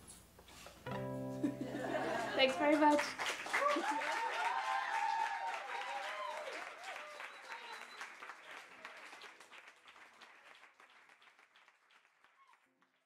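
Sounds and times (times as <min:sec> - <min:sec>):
audience applauding: 0:01.6 - 0:13.0
voices cheering: 0:01.8 - 0:09.2.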